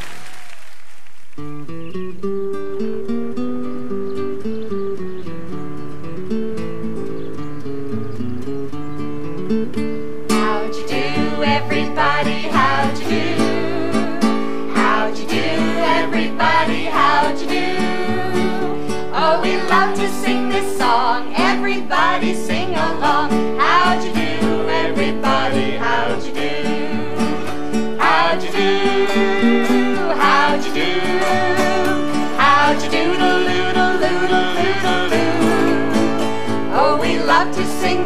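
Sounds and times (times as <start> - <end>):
acoustic guitar strumming: 1.4 - 38.0
upbeat folk song: 10.3 - 38.0.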